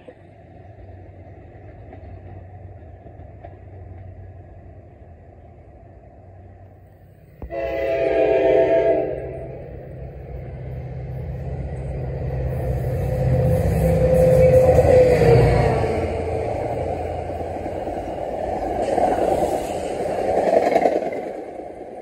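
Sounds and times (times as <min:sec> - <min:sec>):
train rumble: 0:00.0 - 0:22.0
train horn blast: 0:07.4 - 0:09.8.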